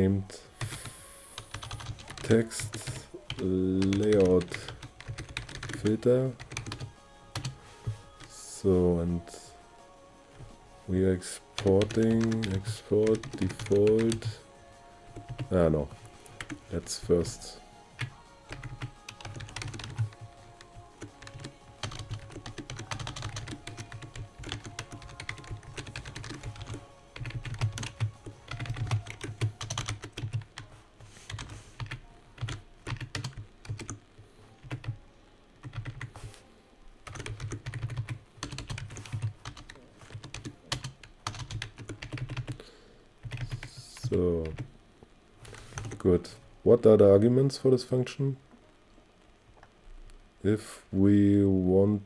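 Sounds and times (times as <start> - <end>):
computer keyboard typing: 0.6 - 7.6, 11.5 - 14.4, 15.2 - 15.6, 16.2 - 16.9, 18.0 - 30.6, 31.3 - 34.0, 34.6 - 35.0, 35.6 - 36.3, 37.0 - 42.6, 43.2 - 44.7, 45.5 - 46.0.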